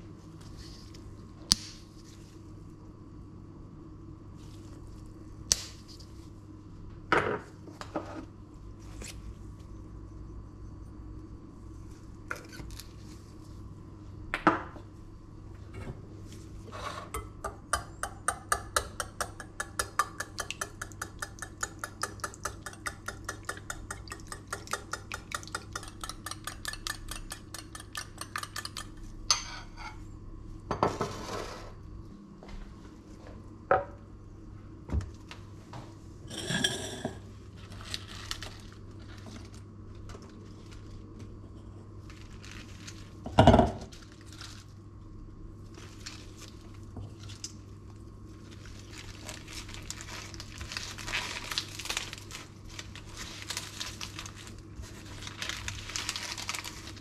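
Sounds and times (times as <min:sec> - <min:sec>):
steady low hum: 0:00.0 - 0:57.0
wire whisk beating eggs in bowl: 0:17.2 - 0:29.1.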